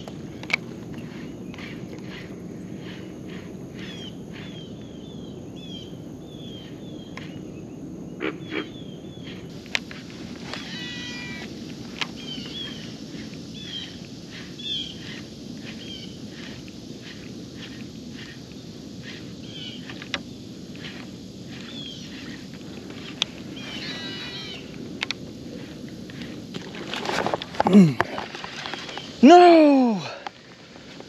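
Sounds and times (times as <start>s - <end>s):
steady low hiss: 0.0s - 31.0s
animal call with several pitches: 10.6s - 11.5s
animal chirps: 10.6s - 11.5s, 23.0s - 24.7s.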